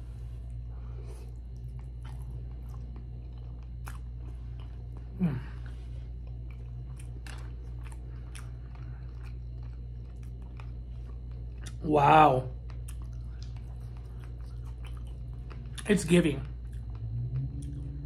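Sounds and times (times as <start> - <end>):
wet chewing mouth clicks: 12.6 - 15.9.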